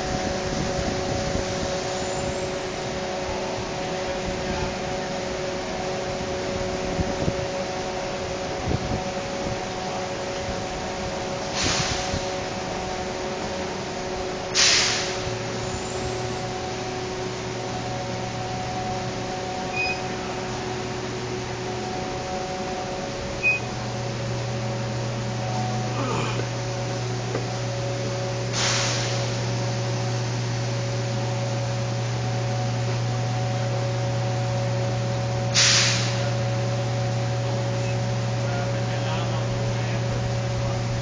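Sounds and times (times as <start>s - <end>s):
machinery humming: 0.0s - 41.0s
short bursts of hiss: 14.6s - 15.3s, 28.5s - 29.3s, 35.5s - 36.3s.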